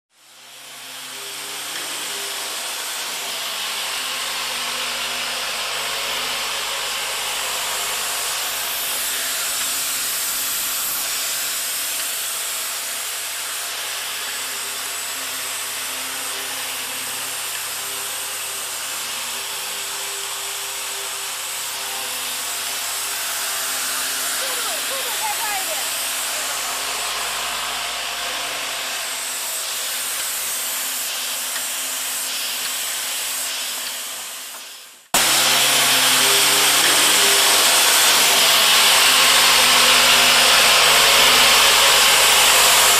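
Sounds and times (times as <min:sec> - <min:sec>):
machine hissing: 0:00.2 - 0:42.9.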